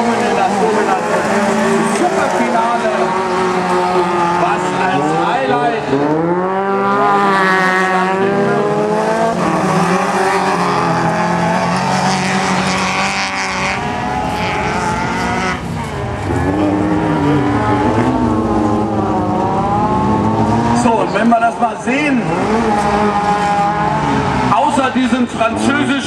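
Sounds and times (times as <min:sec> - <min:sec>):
racing car engines revving: 0:00.0 - 0:26.0.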